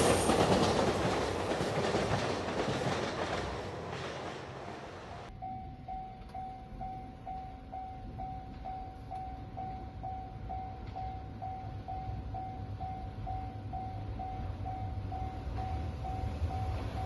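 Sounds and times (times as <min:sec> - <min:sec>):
level crossing warning bell: 0:05.1 - 0:17.0.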